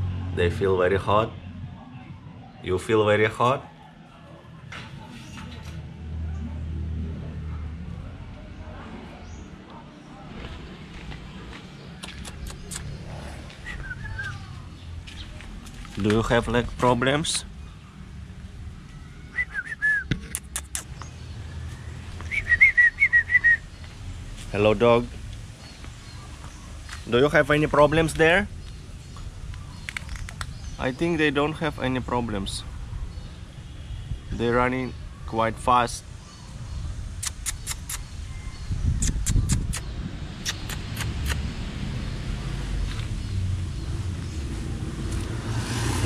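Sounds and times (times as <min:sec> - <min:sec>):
person whistling short notes: 0:13.6 - 0:14.4, 0:19.3 - 0:20.8, 0:22.3 - 0:23.6
sharp clicks: 0:37.2 - 0:38.1.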